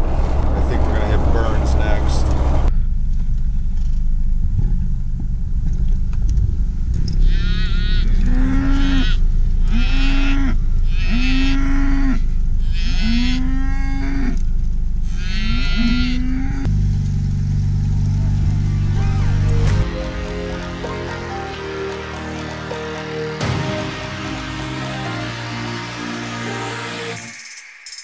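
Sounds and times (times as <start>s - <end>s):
vehicle rumble: 0.0s - 23.3s
cattle mooing: 7.3s - 14.4s, 15.0s - 16.6s.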